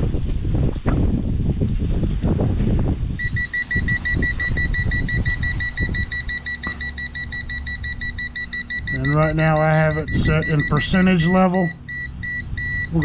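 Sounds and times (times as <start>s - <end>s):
gas detector alarm beeps: 3.2s - 13.0s.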